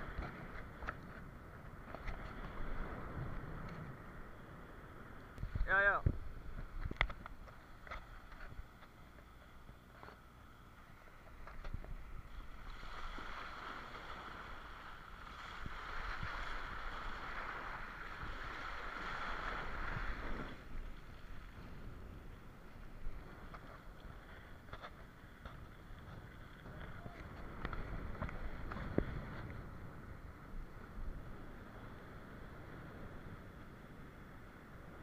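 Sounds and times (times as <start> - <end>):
churning seawater: 11.9 - 24.7.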